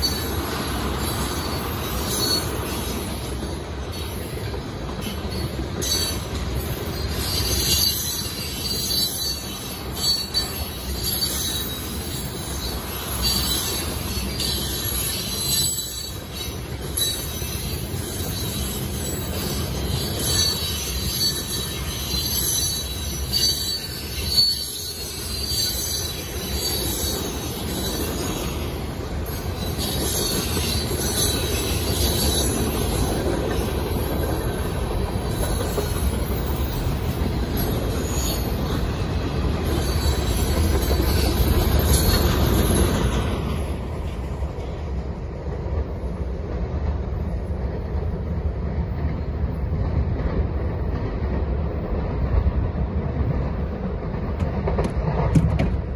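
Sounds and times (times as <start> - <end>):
high wheel squeal: 0.0 - 43.5
freight train rumbling: 0.0 - 55.9.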